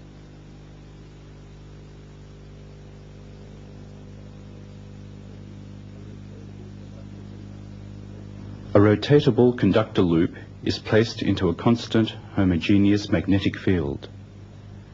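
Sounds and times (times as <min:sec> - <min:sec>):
electrical mains hum: 0:00.0 - 0:14.9
soundtrack hiss: 0:00.0 - 0:14.9.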